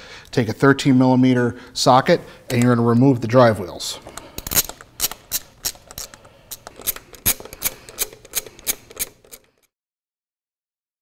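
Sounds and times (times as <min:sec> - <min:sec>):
ratchet wrench clicking: 0:04.2 - 0:09.7.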